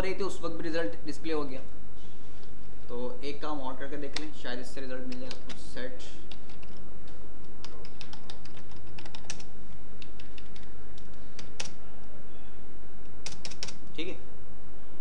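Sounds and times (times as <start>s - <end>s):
steady low hum: 0.0s - 15.0s
keyboard typing clicks: 6.3s - 12.1s, 13.2s - 13.9s.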